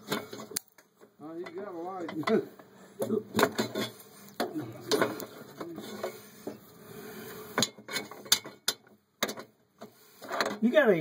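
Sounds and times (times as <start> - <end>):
metal clanks and knocks: 1.4 - 6.6, 7.6 - 9.6.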